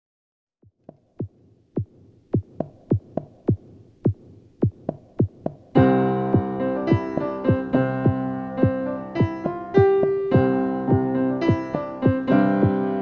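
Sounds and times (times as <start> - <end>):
drum machine kick beat: 0.6 - 13.0
synthesizer and piano chords: 5.8 - 13.0.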